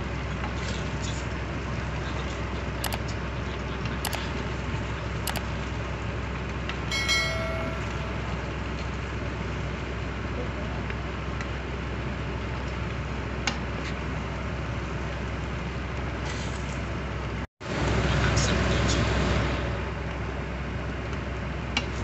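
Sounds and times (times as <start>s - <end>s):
steady low rumbling noise: 0.0s - 13.4s
ringing bell chime: 6.9s - 8.7s.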